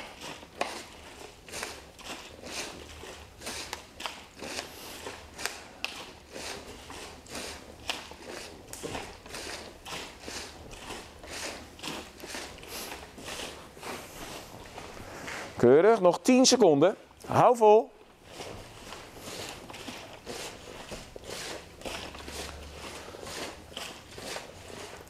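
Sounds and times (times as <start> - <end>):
cloth rustling on mat: 0.0 - 15.9, 17.2 - 25.0.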